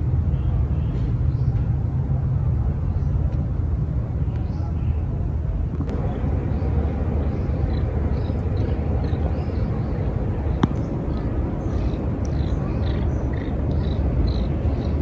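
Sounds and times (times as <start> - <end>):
low rumble: 5.6 - 15.0
small birds chirping: 5.9 - 15.0.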